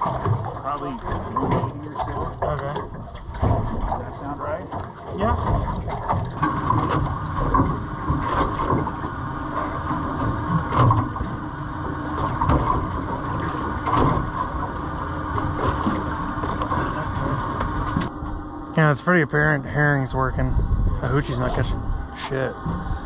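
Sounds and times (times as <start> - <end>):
boat motor hum: 0.0 - 23.0
wind on microphone: 19.9 - 23.0.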